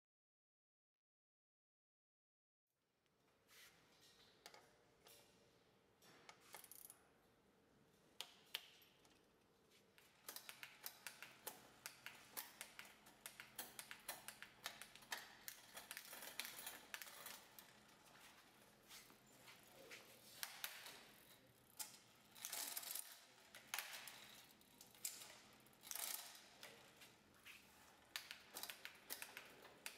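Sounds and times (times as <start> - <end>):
bike chain and gears clicking: 6.4 - 7.0, 10.1 - 18.8, 20.1 - 29.9.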